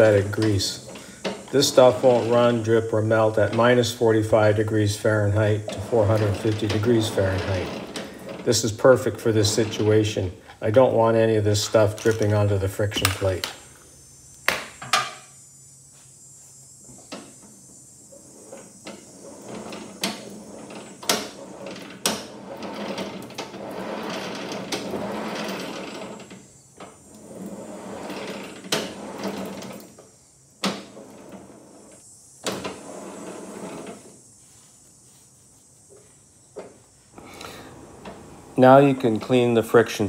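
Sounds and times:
rubbing and rattling: 0:00.0 - 0:13.6, 0:18.1 - 0:30.0.

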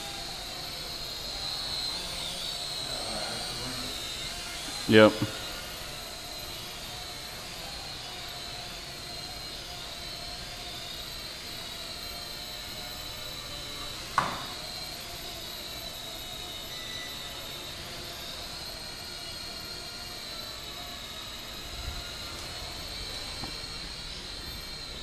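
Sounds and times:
toy drone motors whining: 0:00.0 - 0:25.0.

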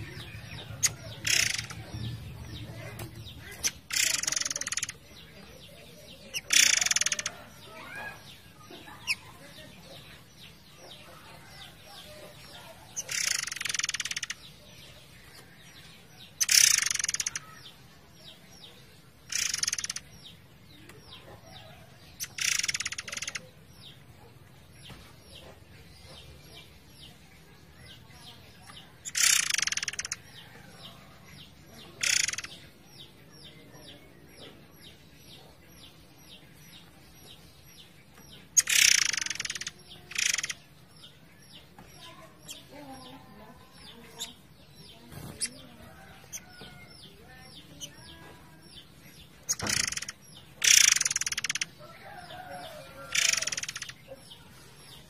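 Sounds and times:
songbird singing: 0:00.0 - 0:55.0
fast repeated bird chips: 0:00.8 - 0:02.1, 0:03.0 - 0:05.0, 0:06.2 - 0:07.3, 0:16.4 - 0:17.6, 0:19.3 - 0:20.1, 0:22.2 - 0:23.4, 0:29.0 - 0:30.2, 0:31.9 - 0:32.6, 0:38.6 - 0:40.6, 0:49.5 - 0:51.7, 0:53.0 - 0:54.0.

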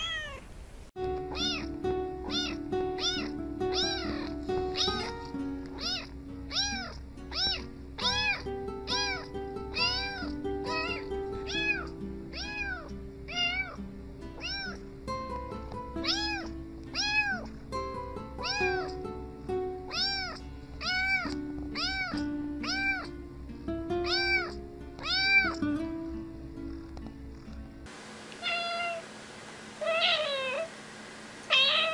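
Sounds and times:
kitten meowing: 0:00.0 - 0:00.4, 0:01.3 - 0:13.8, 0:14.4 - 0:14.8, 0:16.0 - 0:17.5, 0:18.4 - 0:19.0, 0:19.9 - 0:23.1, 0:24.0 - 0:25.6, 0:28.4 - 0:29.0, 0:29.8 - 0:30.7, 0:31.5 - 0:31.9
background music with held notes: 0:01.0 - 0:27.9.

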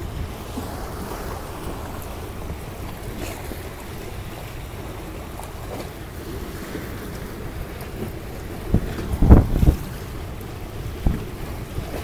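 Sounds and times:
small waves washing ashore: 0:00.0 - 0:12.0
wind buffeting the microphone: 0:00.0 - 0:12.0.

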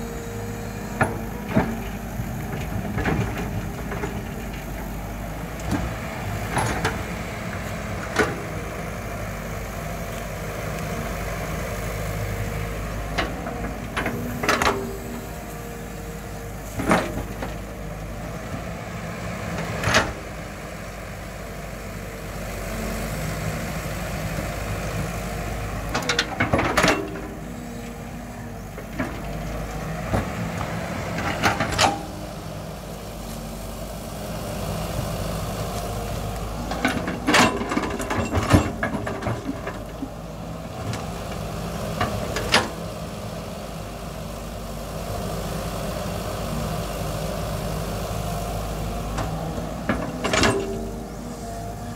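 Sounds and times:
excavator diesel engine running: 0:00.0 - 0:51.9
excavator bucket clanking: 0:00.9 - 0:07.1, 0:25.8 - 0:32.4, 0:36.6 - 0:42.8, 0:49.1 - 0:51.3.

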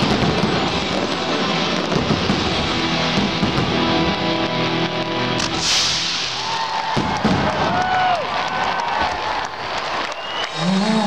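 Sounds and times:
fireworks crackling and popping: 0:00.0 - 0:10.8
brief hiss: 0:05.4 - 0:06.8.

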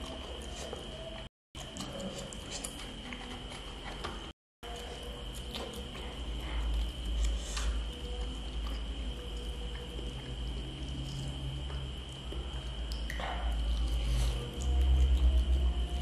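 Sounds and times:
low steady hum: 0:00.0 - 0:16.0
meat squishing: 0:04.6 - 0:16.0
chewing and mouth smacks: 0:04.7 - 0:15.8.

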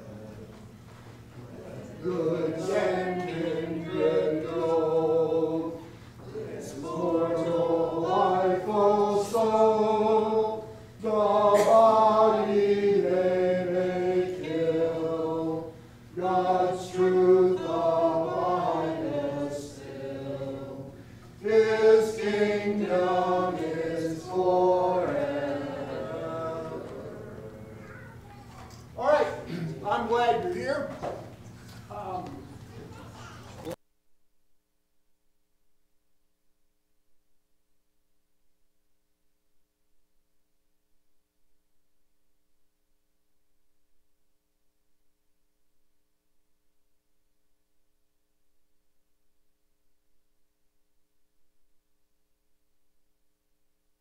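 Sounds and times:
congregation singing a hymn: 0:00.0 - 0:28.0.

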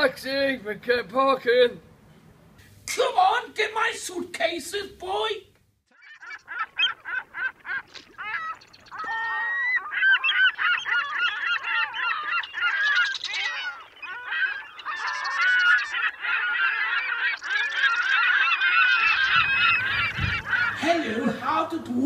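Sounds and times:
flock of birds calling: 0:05.9 - 0:22.0.

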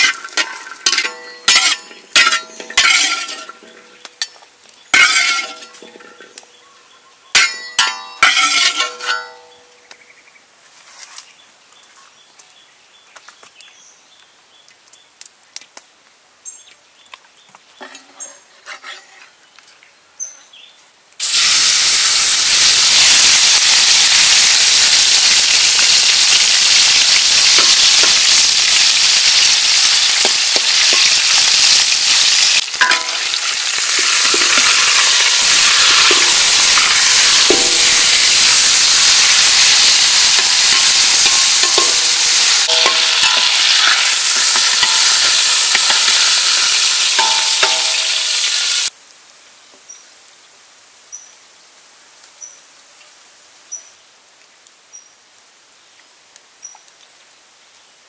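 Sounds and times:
steak sizzling in hot oil: 0:00.0 - 0:05.8, 0:21.2 - 0:48.9
metal spatula scraping a wok: 0:00.0 - 0:06.4, 0:07.4 - 0:09.6, 0:17.8 - 0:19.4, 0:25.3 - 0:48.8.

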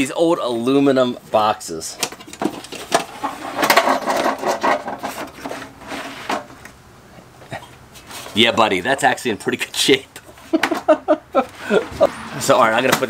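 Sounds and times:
metal trays scraping and rattling: 0:02.0 - 0:06.6.

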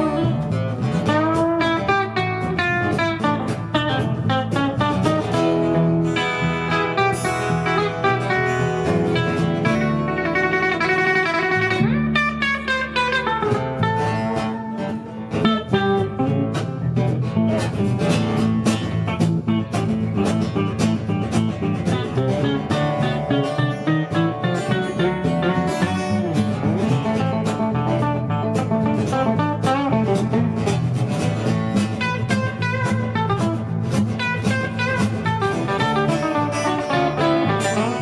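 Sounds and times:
picked guitar notes: 0:00.0 - 0:38.0
plucked double bass line: 0:00.0 - 0:38.0
strummed guitar: 0:00.0 - 0:38.0.

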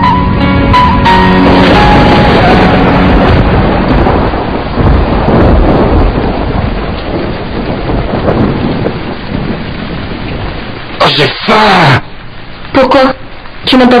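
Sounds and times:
heavy rain falling: 0:00.0 - 0:14.0
thunder rumbling: 0:00.0 - 0:14.0.

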